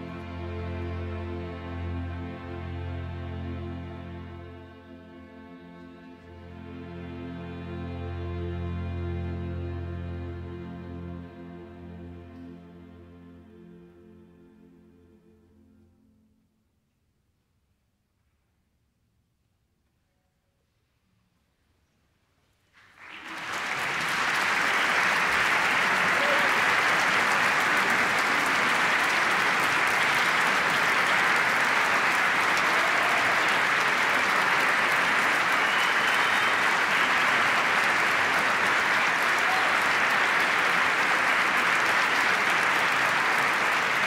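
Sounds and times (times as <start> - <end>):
large audience applauding: 22.8 - 44.0.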